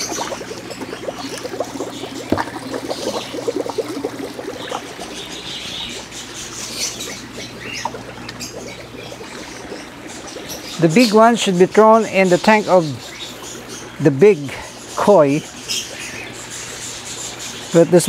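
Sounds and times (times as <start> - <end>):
water splashing and pouring: 0.0 - 11.5
water dripping: 0.0 - 17.9.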